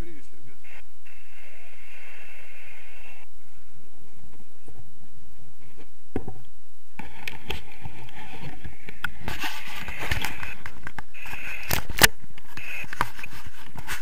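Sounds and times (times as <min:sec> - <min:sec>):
camera scraping against jacket: 0:07.0 - 0:14.0.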